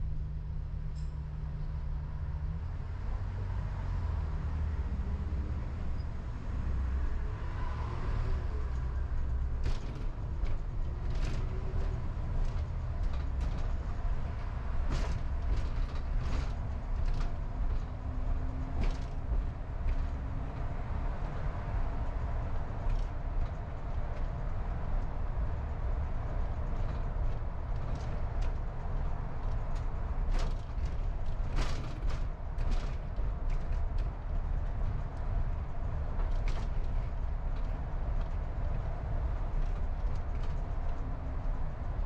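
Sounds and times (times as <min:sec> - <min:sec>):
road and engine rumble: 0:00.0 - 0:42.0.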